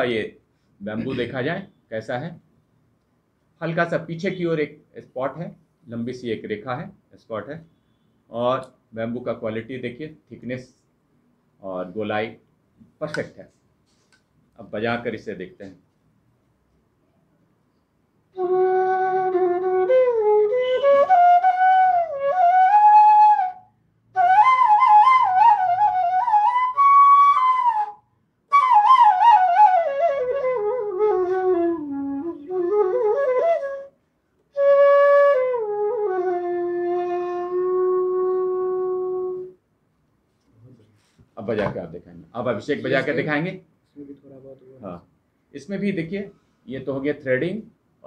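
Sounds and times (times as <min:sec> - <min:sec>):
bamboo flute melody: 0:18.4 - 0:39.6.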